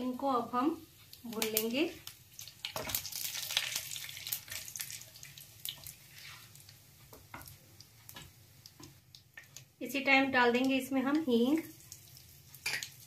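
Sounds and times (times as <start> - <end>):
spices sizzling and crackling in oil: 0.0 - 13.0
wooden spatula stirring: 5.7 - 9.5.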